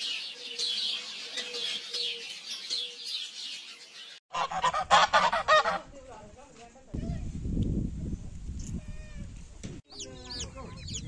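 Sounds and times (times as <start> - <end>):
small birds chirping: 0.0 - 4.2, 9.8 - 11.0
geese honking: 4.3 - 5.8.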